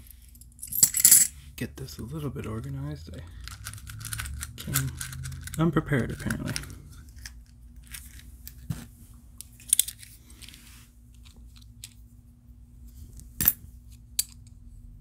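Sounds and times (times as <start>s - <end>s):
silver coins clinking: 0.2s - 1.3s.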